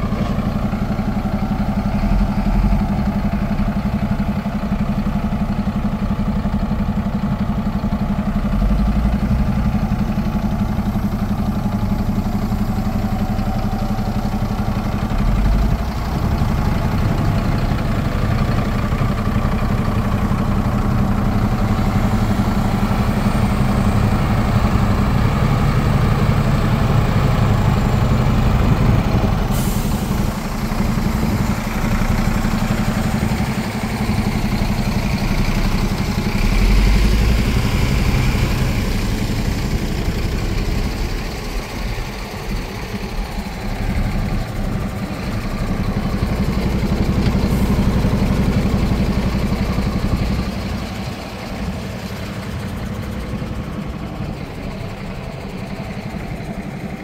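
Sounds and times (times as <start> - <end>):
truck engine idling: 0.0 - 57.0.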